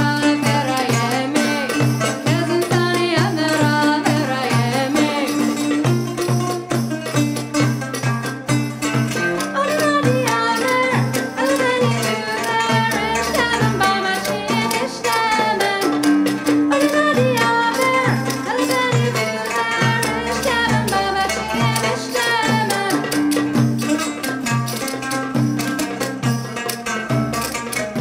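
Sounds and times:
hand drum rhythm: 0:00.0 - 0:28.0.

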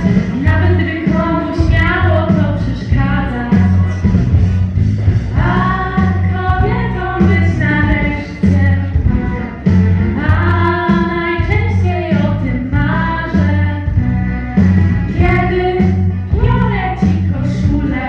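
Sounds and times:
girls singing: 0:00.0 - 0:04.1, 0:05.3 - 0:08.9, 0:10.2 - 0:13.9, 0:15.1 - 0:18.0
instrumental accompaniment with bass: 0:00.0 - 0:18.0.

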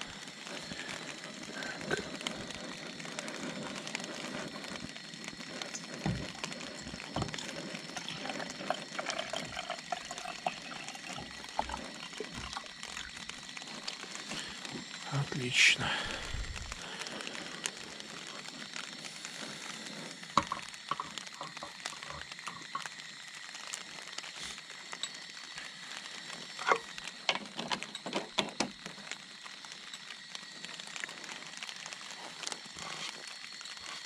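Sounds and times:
background hiss: 0:00.0 - 0:34.0
camp cooking gear clicking and knocking: 0:05.6 - 0:12.7, 0:20.3 - 0:23.0, 0:26.6 - 0:28.8.

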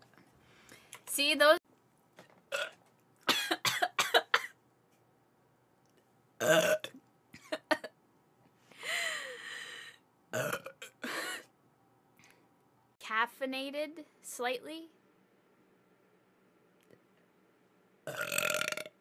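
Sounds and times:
woman burping: 0:02.5 - 0:04.5, 0:06.4 - 0:07.9, 0:10.3 - 0:11.5, 0:18.1 - 0:19.0.

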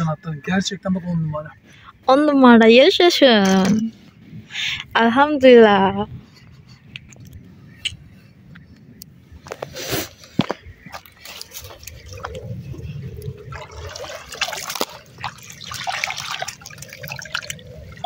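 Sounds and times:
water splashing and trickling: 0:10.8 - 0:18.0.

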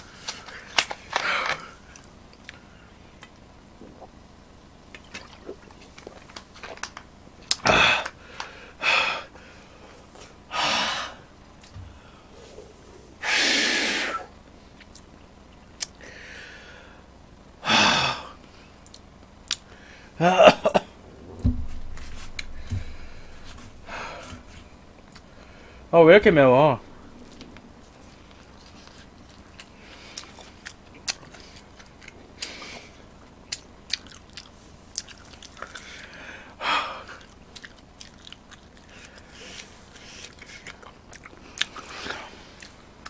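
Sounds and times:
man hissing breaths: 0:07.6 - 0:11.3, 0:11.9 - 0:14.3, 0:22.0 - 0:25.9.

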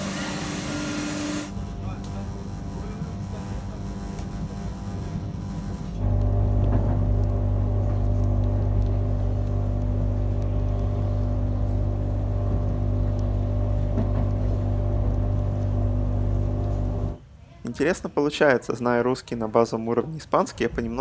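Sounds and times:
train rumble and hum: 0:01.6 - 0:17.2.

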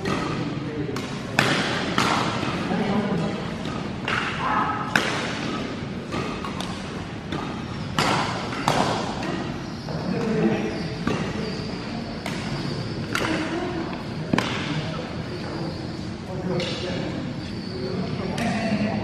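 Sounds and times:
rackets striking shuttlecock: 0:00.0 - 0:11.5, 0:12.1 - 0:15.0, 0:16.5 - 0:17.1, 0:18.2 - 0:18.8.

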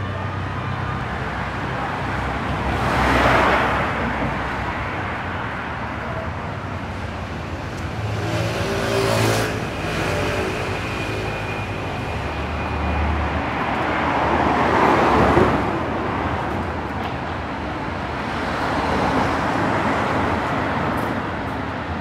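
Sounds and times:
low rumble of traffic: 0:00.0 - 0:22.0
car passing by: 0:07.9 - 0:11.6.

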